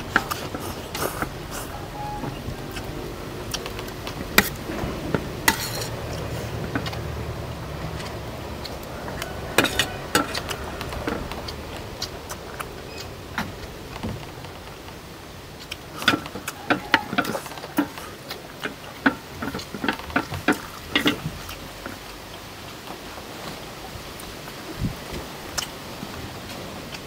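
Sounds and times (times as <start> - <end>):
utensils clinking against plates: 0.0 - 7.1, 7.8 - 13.2, 15.7 - 22.0.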